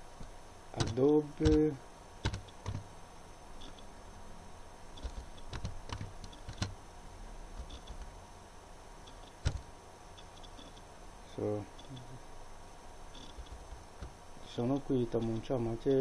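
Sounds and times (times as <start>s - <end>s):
keyboard typing: 0.8s - 2.9s, 5.0s - 6.8s, 7.5s - 8.2s, 9.1s - 9.7s, 13.2s - 14.2s.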